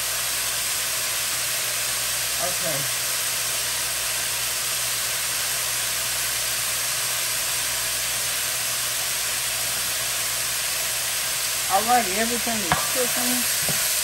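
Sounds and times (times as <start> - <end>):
vegetables sizzling in a skillet: 0.0 - 14.0.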